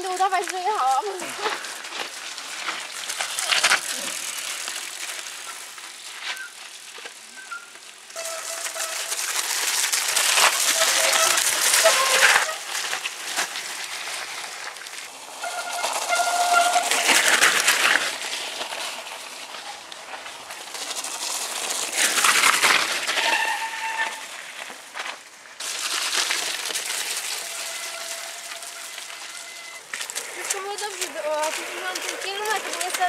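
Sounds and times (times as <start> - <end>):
bike tyres splashing in mud: 0.0 - 33.0
brief squealing tones: 15.4 - 17.0.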